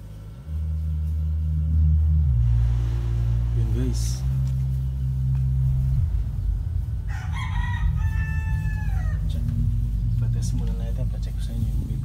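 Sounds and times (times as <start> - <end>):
subwoofer bass music: 0.0 - 12.0
rooster crowing: 6.8 - 10.1.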